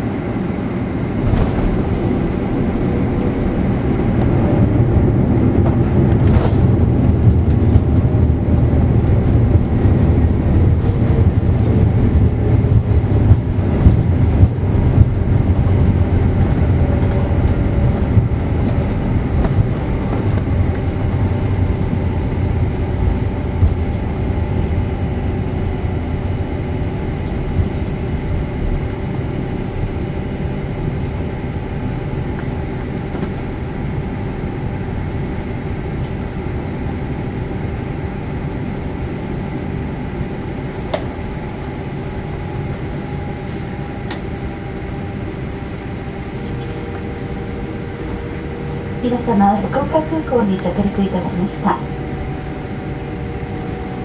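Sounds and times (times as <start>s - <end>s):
airliner engines and wheels rumbling: 0.0s - 54.0s.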